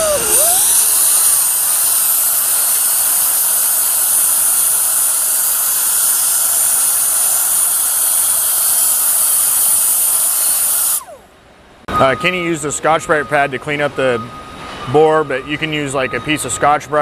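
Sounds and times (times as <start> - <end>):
air die grinder hissing: 0.0 - 11.3.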